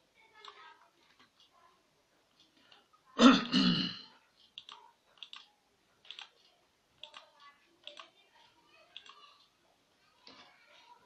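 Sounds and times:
person clearing throat: 0:03.2 - 0:04.1.

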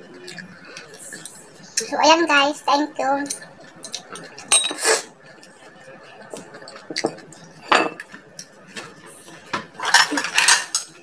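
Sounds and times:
cutlery clinking on ceramic bowl: 0:03.3 - 0:04.8, 0:06.7 - 0:08.2, 0:09.8 - 0:11.0.

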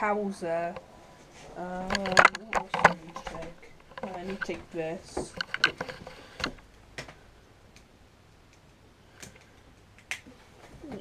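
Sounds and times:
small objects clicking on a desk: 0:01.8 - 0:07.2.

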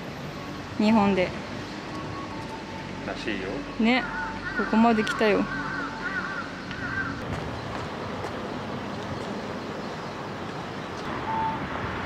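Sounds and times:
even outdoor hiss: 0:00.0 - 0:12.0
brief steady tone: 0:11.1 - 0:11.8.

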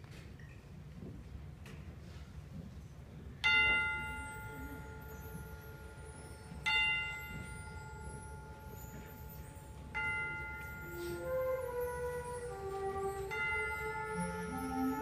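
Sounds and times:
tubular bells ringing: 0:03.4 - 0:15.0.

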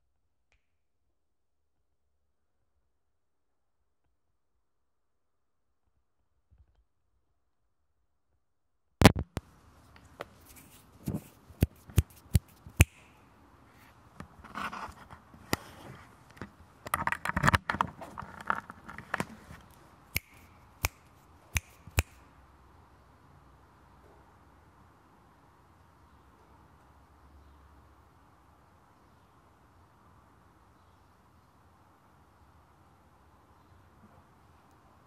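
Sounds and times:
recorder rustling and scraping: 0:09.0 - 0:12.8, 0:13.7 - 0:19.9.

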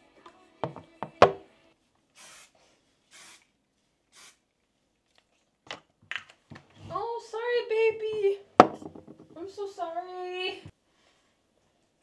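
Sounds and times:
aerosol hairspray hissing: 0:02.2 - 0:03.5, 0:04.1 - 0:04.4
sharp knocks: 0:08.6 - 0:09.4.

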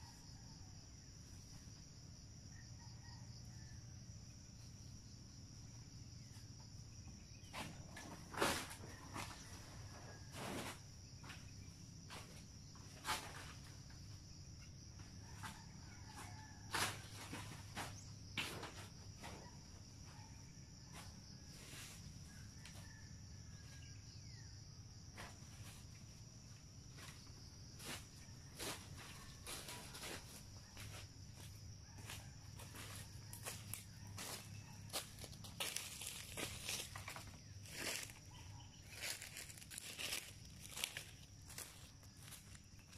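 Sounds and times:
high-pitched insect chorus: 0:00.0 - 0:42.9.

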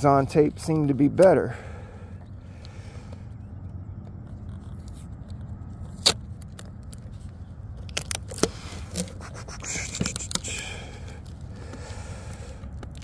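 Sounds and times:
rasping scrape: 0:08.4 - 0:11.1.

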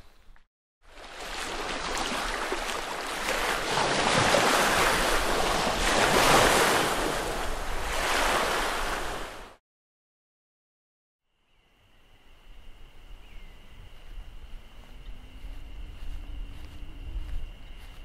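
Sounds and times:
waves washing onto shore: 0:00.9 - 0:09.6.

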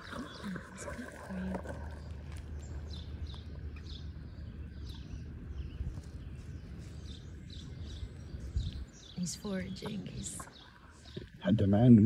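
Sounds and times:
bird chirping: 0:00.0 - 0:12.0
steady low rumble: 0:00.0 - 0:12.0.

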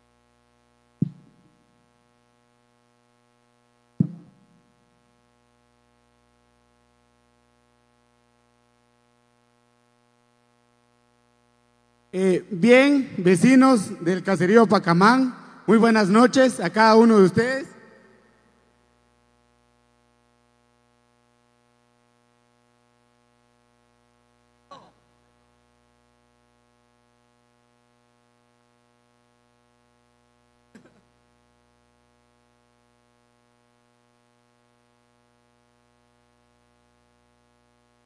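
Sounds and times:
low electrical hum: 0:00.0 - 0:38.0
brief knock: 0:01.0 - 0:01.4, 0:04.0 - 0:04.4.

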